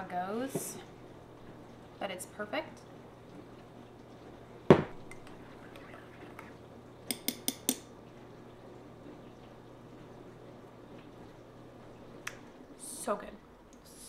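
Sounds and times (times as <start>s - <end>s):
dishwasher humming: 0.0s - 14.0s.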